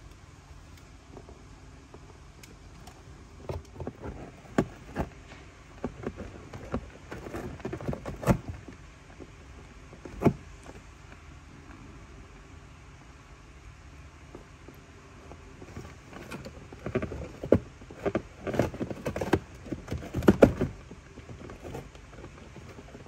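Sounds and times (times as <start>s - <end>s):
cat clawing at cardboard: 3.3s - 11.0s, 15.3s - 23.0s.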